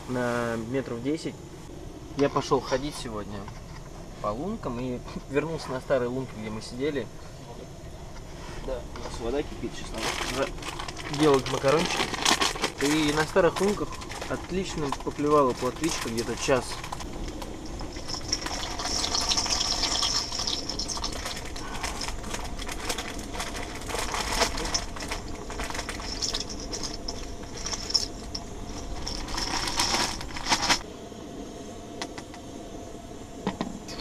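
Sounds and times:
water boiling: 9.7 - 30.9
gas stove hissing: 12.5 - 34.0.

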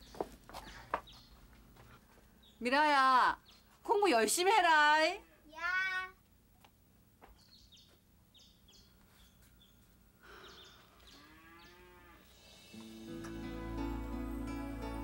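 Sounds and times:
small birds chirping: 0.0 - 4.0, 7.2 - 12.0
cow mooing: 11.2 - 12.3
soft music: 12.5 - 15.0.

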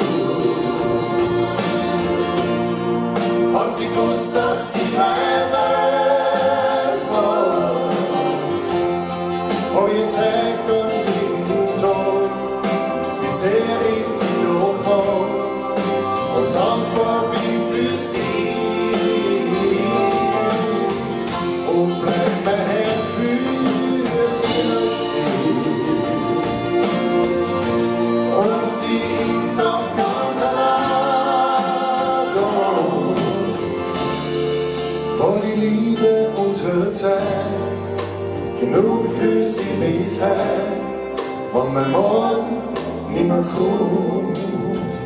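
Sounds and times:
person singing: 0.0 - 2.4, 3.3 - 34.2, 35.1 - 45.0
live band playing pop ballad: 0.0 - 45.0.

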